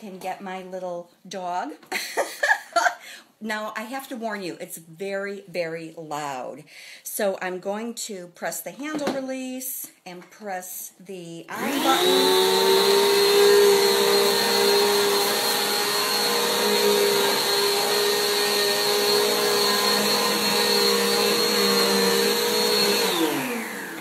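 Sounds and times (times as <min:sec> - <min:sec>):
upright vacuum running: 0:11.5 - 0:24.0
vacuum motor winding down: 0:11.5 - 0:24.0.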